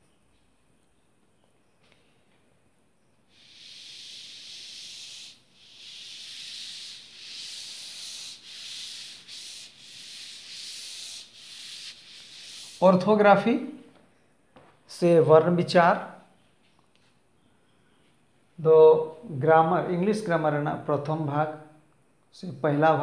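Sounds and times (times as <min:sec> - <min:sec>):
duster rubbing blackboard: 0:03.3 - 0:13.2.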